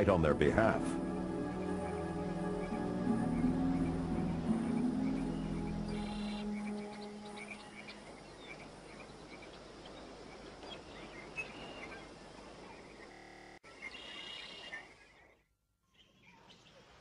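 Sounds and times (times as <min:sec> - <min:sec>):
high chirps of forest creatures: 0:00.0 - 0:09.5
steady low hiss: 0:00.0 - 0:15.2.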